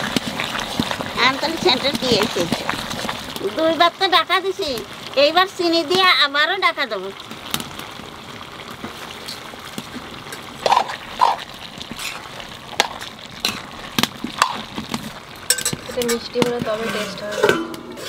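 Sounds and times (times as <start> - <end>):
vegetables hissing while cooking: 0.0 - 18.0
metal spatula clinking in pan: 15.5 - 16.2.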